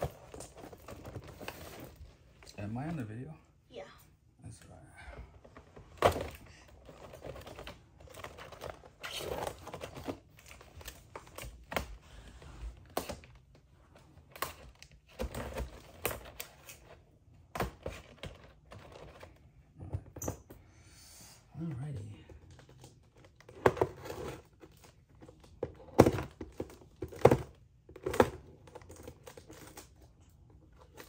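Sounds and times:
hands handling plastic packaging: 22.5 - 31.0.

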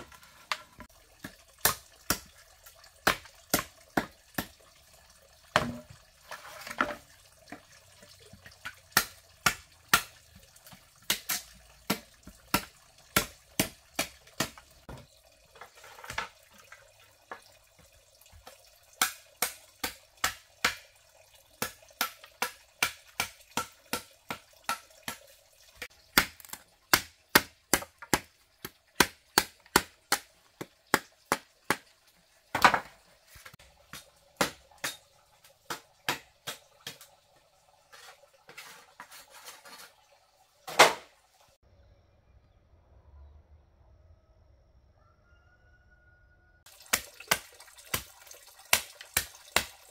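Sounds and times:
machete chopping bamboo: 9.0 - 10.1, 11.0 - 14.7, 19.0 - 20.9, 21.6 - 25.3, 26.0 - 31.8, 33.9 - 35.0, 35.7 - 37.0, 48.7 - 49.9.

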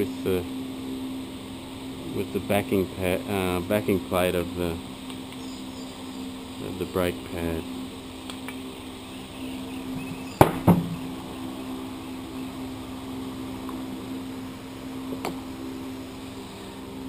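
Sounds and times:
steady low hum: 0.0 - 17.0
metal part knocking on workbench: 10.4 - 11.0.

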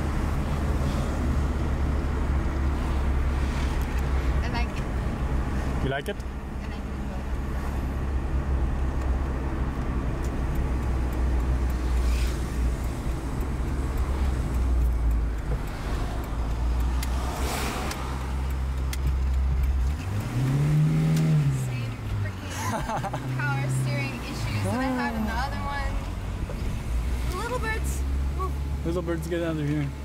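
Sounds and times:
car engine running: 0.0 - 30.0
road noise inside car: 0.0 - 30.0.

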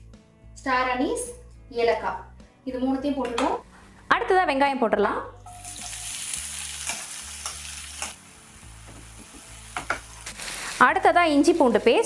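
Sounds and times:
onions sizzling in oil: 5.4 - 12.0.

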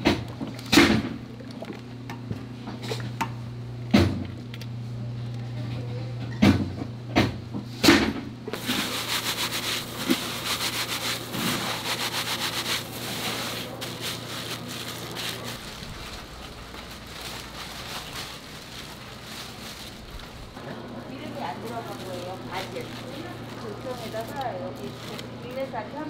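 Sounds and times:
steady low hum: 0.0 - 26.0
rice rattling in plastic basket: 8.6 - 25.7.

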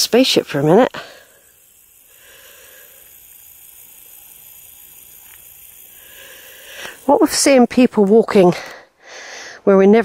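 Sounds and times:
faint steady hiss: 0.0 - 9.8.

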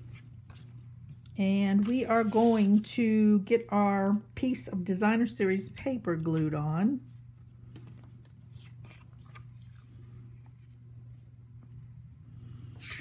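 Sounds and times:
card stock rustling and sliding: 1.8 - 2.9, 12.8 - 13.0.

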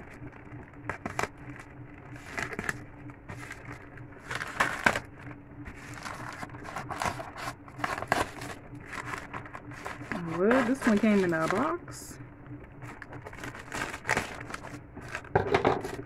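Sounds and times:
plastic crinkling and rustling: 0.0 - 16.0
scissors cutting plastic mailer: 0.9 - 1.3, 2.2 - 5.1, 5.8 - 11.8, 13.0 - 16.0.

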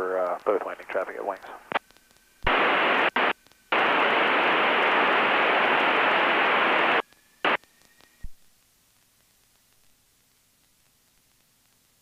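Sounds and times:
radio static hiss: 0.0 - 12.0
radio click: 0.3 - 8.4.

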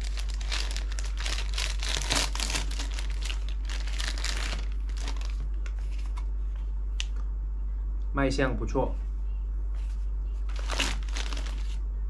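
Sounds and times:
crinkly wrapper crackling: 0.0 - 6.3, 10.5 - 11.8.

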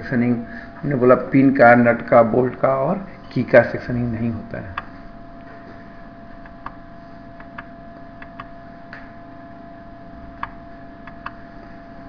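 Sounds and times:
low room hum: 0.0 - 12.0
sharp clicks: 7.4 - 9.0, 10.4 - 11.4.

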